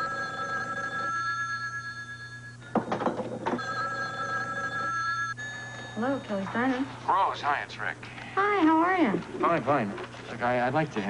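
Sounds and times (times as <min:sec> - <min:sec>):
rotary telephone ringing: 0:00.0 - 0:06.9.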